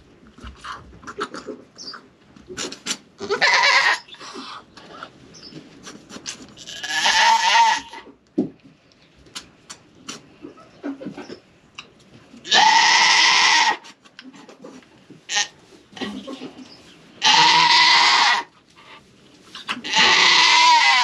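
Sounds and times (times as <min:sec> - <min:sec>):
goat screaming: 0:03.2 - 0:04.1, 0:06.7 - 0:08.0, 0:12.5 - 0:13.8, 0:17.2 - 0:18.5, 0:19.8 - 0:21.0.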